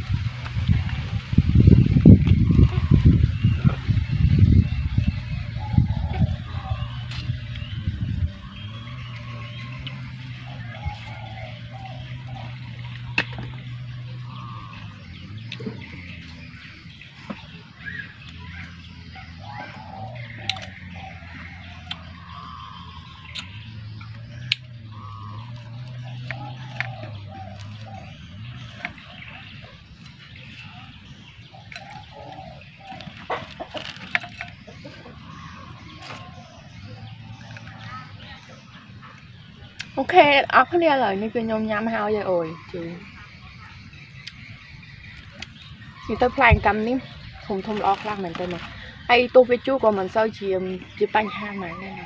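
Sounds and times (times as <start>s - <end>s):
chickens clucking: 0.0s - 52.0s.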